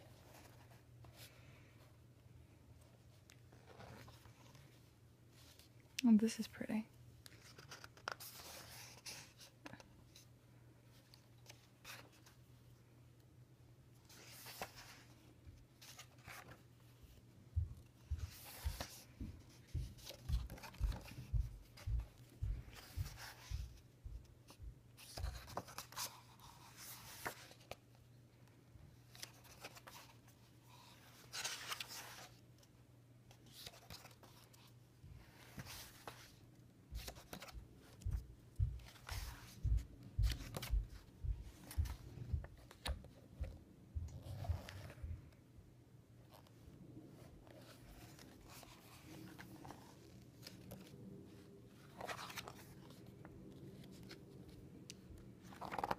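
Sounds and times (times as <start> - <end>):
book pages turning: 0.0 - 1.3, 2.8 - 4.8, 7.2 - 10.3, 11.0 - 12.4, 14.0 - 28.0, 29.0 - 32.7, 33.3 - 38.2, 38.8 - 43.5, 44.2 - 45.0, 46.3 - 46.6, 47.4 - 55.9
soft thumps of book handling: 15.8 - 27.8, 35.3 - 45.4.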